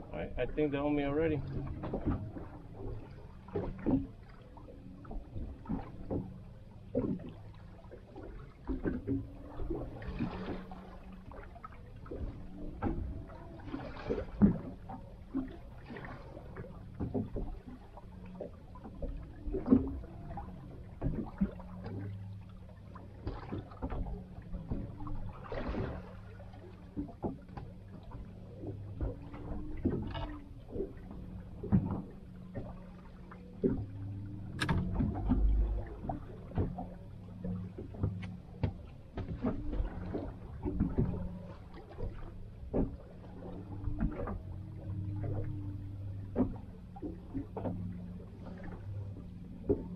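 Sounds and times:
boat knocks and creaks: 0:00.0 - 0:49.9
steady low hum: 0:00.0 - 0:49.9
water lapping against boat hull: 0:00.0 - 0:49.9.

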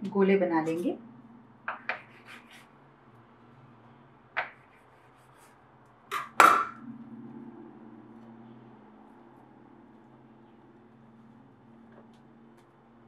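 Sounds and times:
loud knocks on countertop: 0:06.1 - 0:06.8.

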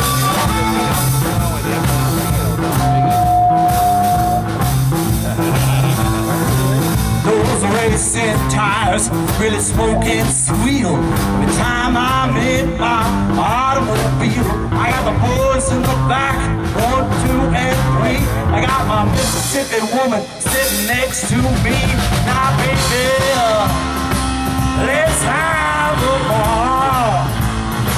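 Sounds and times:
amplified harmonica: 0:00.0 - 0:07.4
bass guitar: 0:00.0 - 0:27.9
drums: 0:00.0 - 0:27.9
electric guitar: 0:00.0 - 0:27.9.

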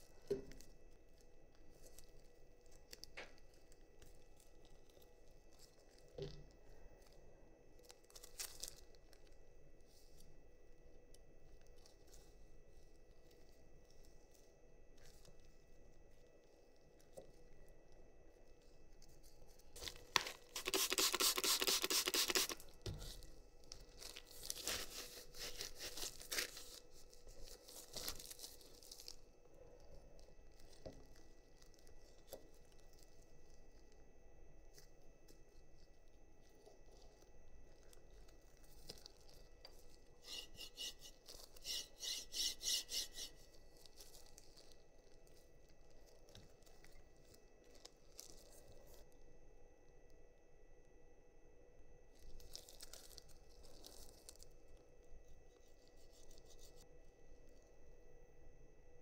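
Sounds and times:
handling of parts: 0:19.1 - 0:29.2, 0:37.6 - 0:44.8
loud rasping tear: 0:20.4 - 0:22.6, 0:40.2 - 0:43.4.

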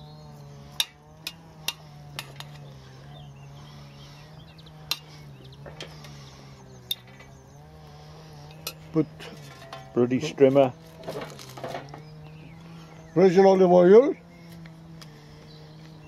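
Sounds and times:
strimmer engine drone: 0:00.0 - 0:16.0.

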